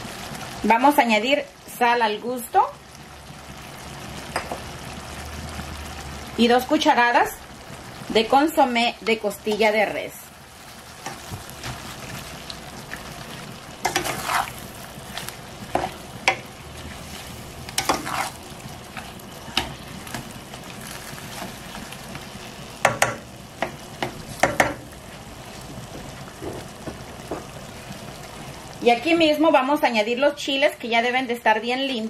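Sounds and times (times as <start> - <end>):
vegetables sizzling in oil: 0.0 - 32.0
spatula scraping a pan: 13.8 - 18.4.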